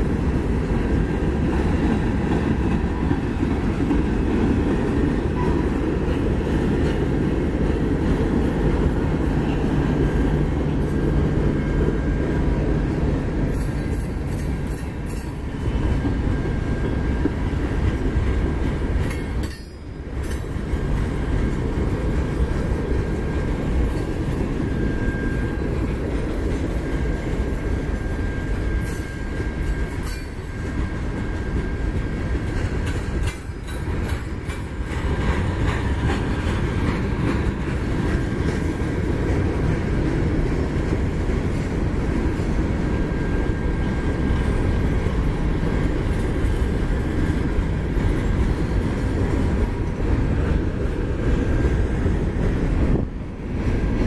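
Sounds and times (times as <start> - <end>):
train clanks: 0.0 - 54.0
train wheels rumbling on rails: 0.0 - 54.0.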